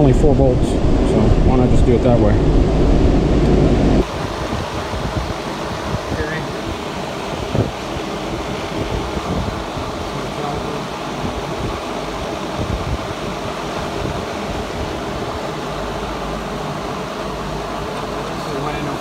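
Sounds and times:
irregular low rumble: 0.0 - 6.3
rushing air noise: 0.0 - 19.0.

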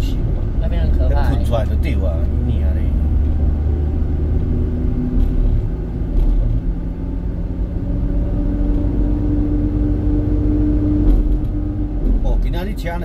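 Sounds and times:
vehicle engine rumble: 0.0 - 13.0.

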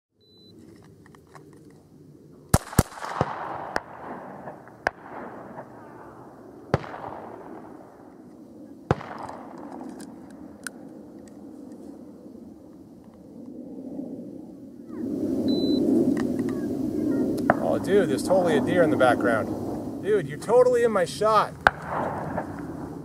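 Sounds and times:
pistol shots with echo: 2.5 - 8.1, 8.9 - 9.8, 21.6 - 22.9.

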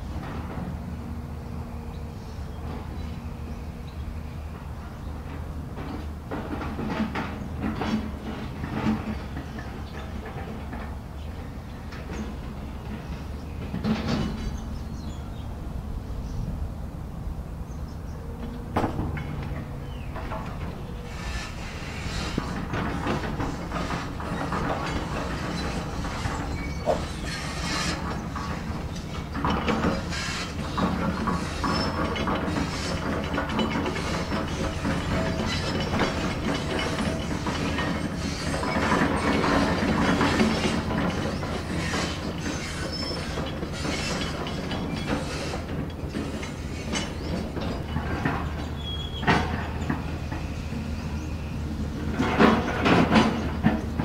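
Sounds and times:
excavator diesel engine running: 0.0 - 54.0
metallic clanks and knocks: 5.2 - 15.2, 18.4 - 50.8, 51.9 - 54.0.

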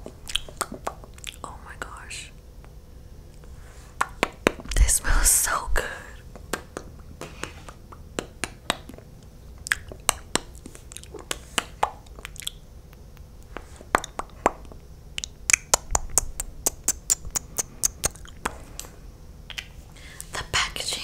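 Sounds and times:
sticky lips smacking and popping: 0.2 - 1.5, 6.3 - 18.9, 19.5 - 19.8.

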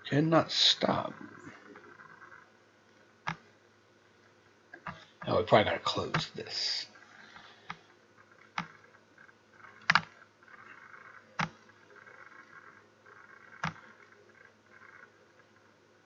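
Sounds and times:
computer mouse clicking: 3.2 - 3.4, 8.4 - 8.9, 9.7 - 12.7, 13.3 - 14.2.

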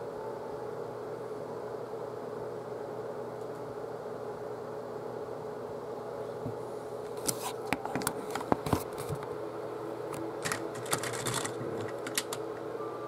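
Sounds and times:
faint steady hum: 0.0 - 13.0
plastic toy clicking: 10.4 - 12.4.

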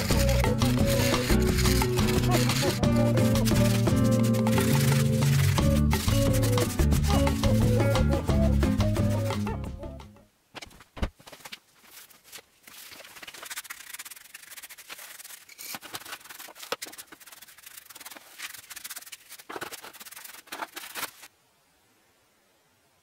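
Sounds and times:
scraper scraping metal tray: 0.0 - 6.8.

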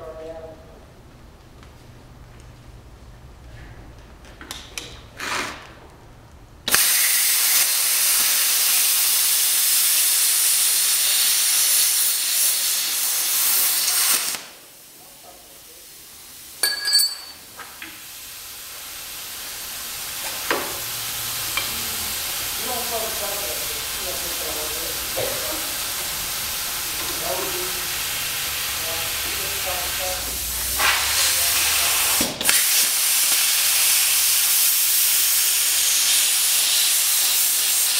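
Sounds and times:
plasma cutter hissing: 6.7 - 16.7, 17.8 - 37.9
metallic clinks: 16.6 - 17.4.

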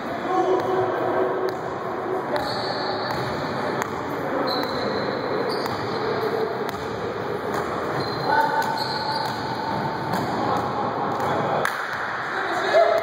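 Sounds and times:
basketball bouncing on court: 2.4 - 4.0, 6.6 - 11.4
shoes squeaking: 7.7 - 9.8.

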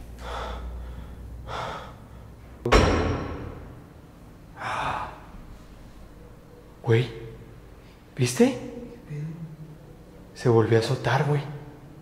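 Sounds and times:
loud breathing: 0.0 - 2.6
door slamming shut: 2.7 - 3.8.

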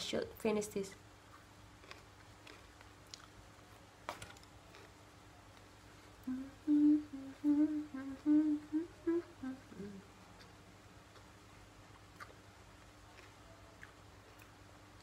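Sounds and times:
woman humming a tune: 6.2 - 10.2.

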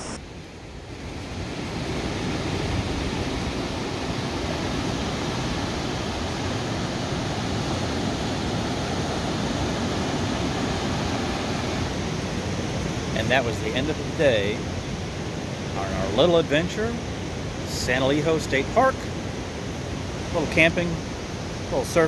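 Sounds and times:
ocean surf breaking: 0.0 - 22.0.

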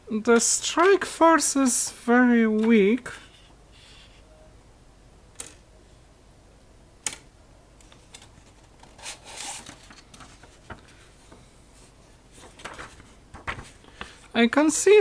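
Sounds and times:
typewriter clicks: 5.4 - 5.6, 7.0 - 7.3
paper rustling: 7.8 - 14.3.

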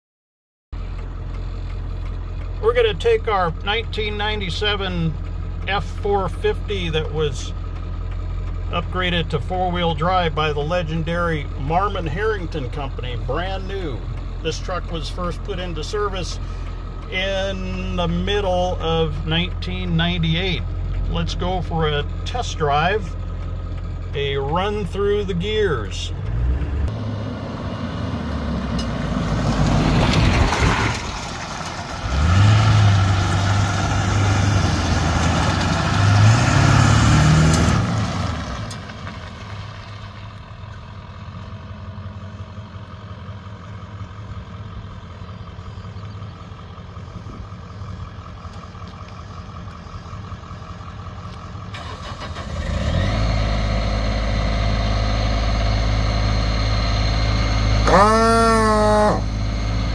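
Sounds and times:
diesel engine accelerating through gears: 0.8 - 59.9
diesel engine running with rising whine: 0.8 - 59.9.

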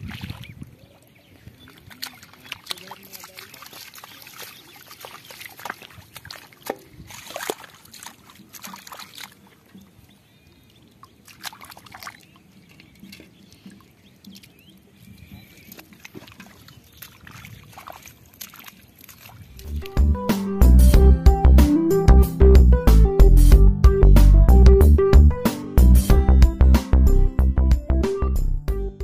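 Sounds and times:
splashing in shallow water: 0.0 - 20.0
bare feet slapping through water: 0.0 - 20.5.

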